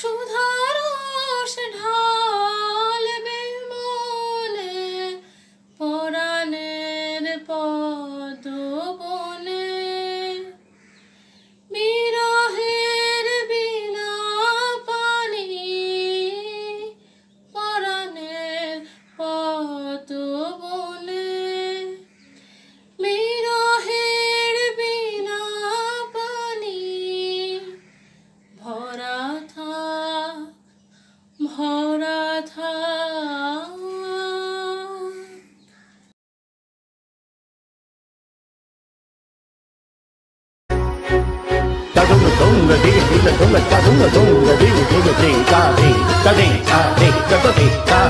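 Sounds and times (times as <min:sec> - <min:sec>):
woman singing slow melody: 0:00.0 - 0:10.6, 0:11.7 - 0:22.1, 0:23.0 - 0:27.8, 0:28.6 - 0:30.6, 0:31.4 - 0:35.4, 0:43.9 - 0:48.0
faint low hum: 0:00.0 - 0:36.0.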